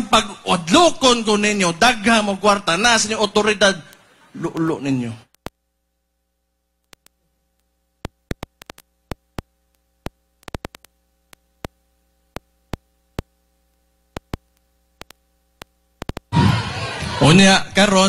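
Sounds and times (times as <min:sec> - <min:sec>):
faint steady hum: 0:00.0 - 0:18.0
sharp clicks: 0:06.8 - 0:16.3.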